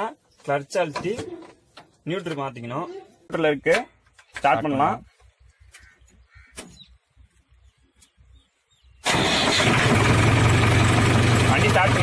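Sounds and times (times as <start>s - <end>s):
diesel engine starting and running: 8.9s - 12.0s.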